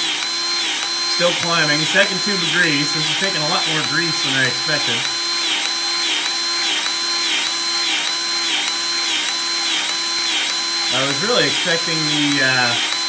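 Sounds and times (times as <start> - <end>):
grease gun motor whine: 0.0 - 13.0.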